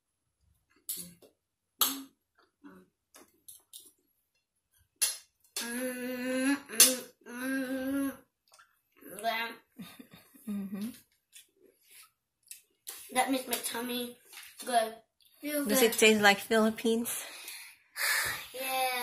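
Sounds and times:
child humming: 0:05.6 - 0:08.3.

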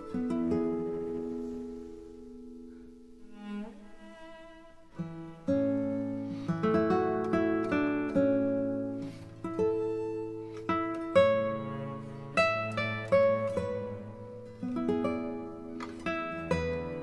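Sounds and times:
instrumental music with plucked strings: 0:00.0 - 0:17.0.

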